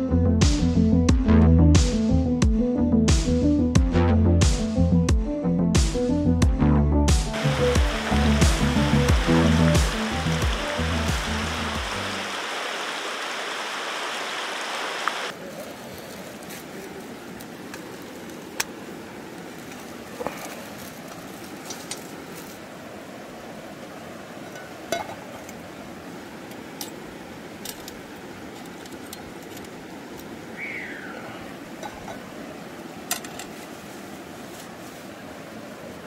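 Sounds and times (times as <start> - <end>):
stream flowing over rocks: 7.4 - 36.0.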